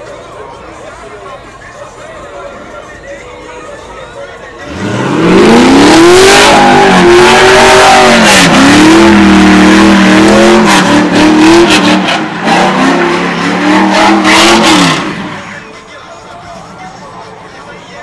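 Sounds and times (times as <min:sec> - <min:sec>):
car engine revving hard: 0:04.6 - 0:15.6.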